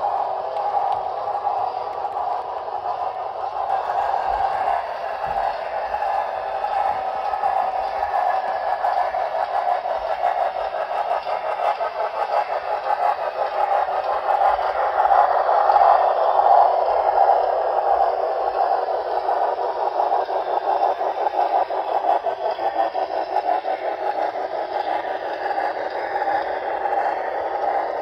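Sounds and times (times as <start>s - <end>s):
model train cars rumbling on track: 0.0s - 28.0s.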